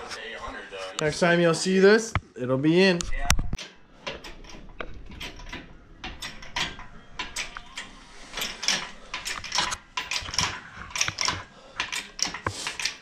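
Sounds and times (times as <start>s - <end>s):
lifting chain clinking and rattling: 3.6s - 13.0s.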